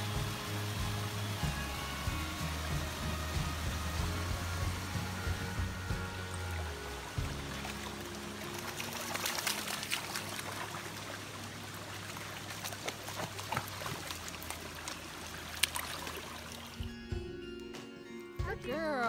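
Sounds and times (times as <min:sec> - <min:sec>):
stream trickling over stones: 0:00.0 - 0:16.9
footsteps wading through water: 0:06.4 - 0:17.0.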